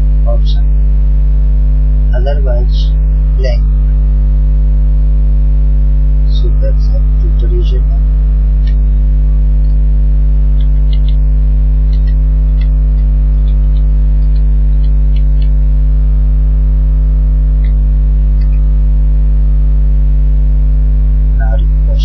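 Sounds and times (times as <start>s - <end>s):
electrical mains hum: 0.0s - 22.0s.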